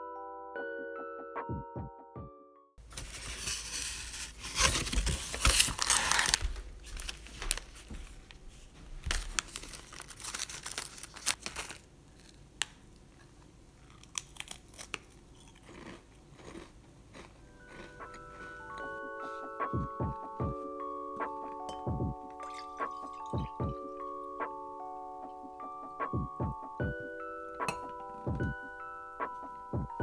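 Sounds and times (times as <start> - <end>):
snack wrapper tearing and crinkling: 3.0 - 7.8, 9.0 - 18.2.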